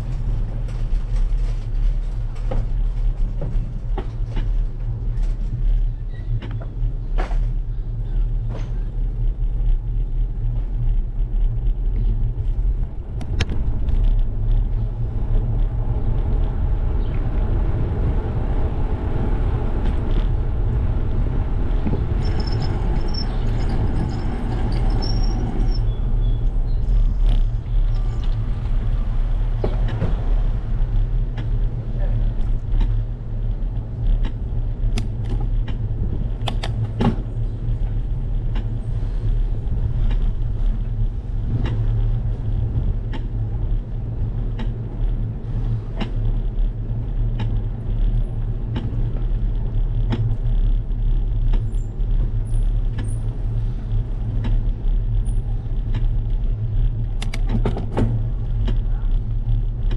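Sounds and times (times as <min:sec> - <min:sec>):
wind and road rumble: 0:00.0 - 0:59.9
bicycle clicks and rattles: 0:32.4 - 0:45.3, 0:46.0 - 0:59.9.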